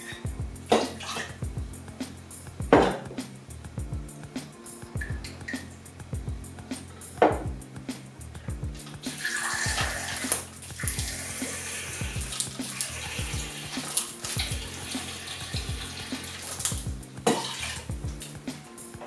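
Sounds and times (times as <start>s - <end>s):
background music with beat: 0.0s - 19.0s
hissing stream of liquid: 8.8s - 18.5s.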